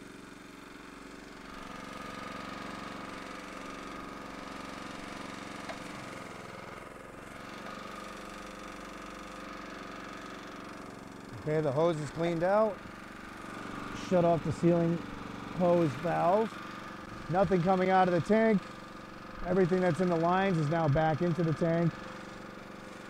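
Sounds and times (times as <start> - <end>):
small engine running steadily: 0.0 - 23.0
steady high whine: 10.6 - 23.0.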